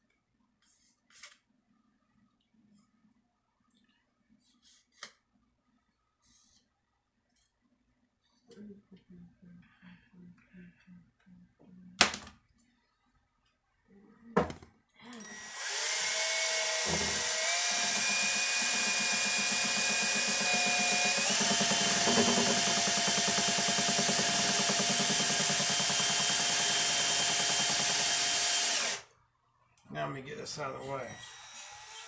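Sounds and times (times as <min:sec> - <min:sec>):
power drill mixing resin: 0:15.1 - 0:29.1, 0:30.6 - 0:32.0.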